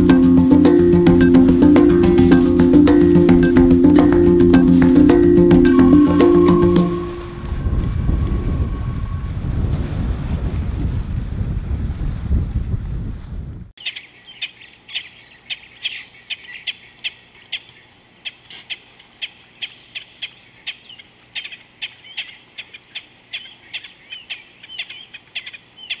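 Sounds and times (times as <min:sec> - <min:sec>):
birds chirping: 0:13.8 - 0:26.0.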